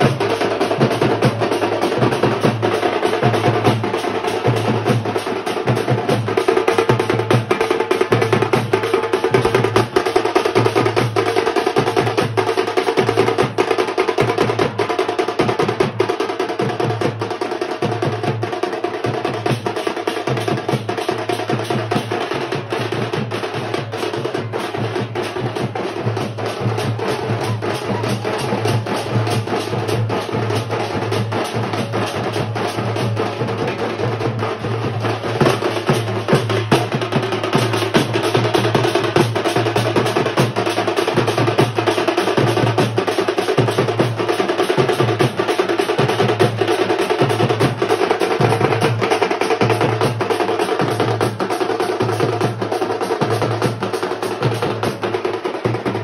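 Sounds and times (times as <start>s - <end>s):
street drum band: 0.0s - 56.0s.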